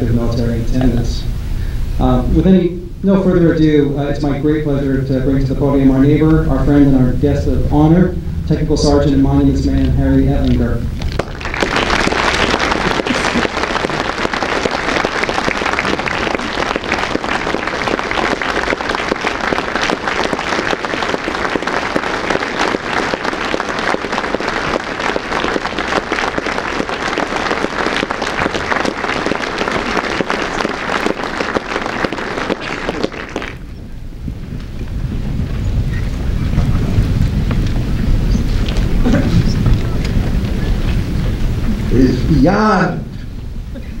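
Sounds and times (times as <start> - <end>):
audience applauding: 10.4 - 33.7.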